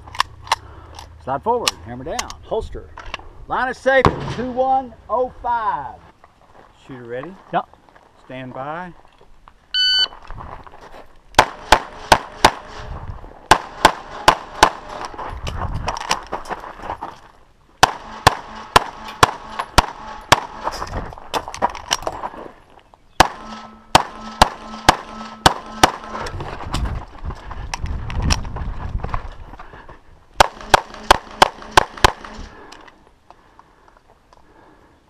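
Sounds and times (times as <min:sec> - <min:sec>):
pistol shots: 0:11.4 - 0:12.8, 0:13.5 - 0:15.0, 0:17.8 - 0:20.8, 0:23.2 - 0:26.3, 0:30.4 - 0:32.5.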